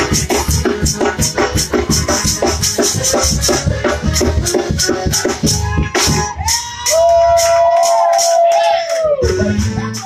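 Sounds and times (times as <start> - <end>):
shaken percussion beat: 0.0 - 10.0.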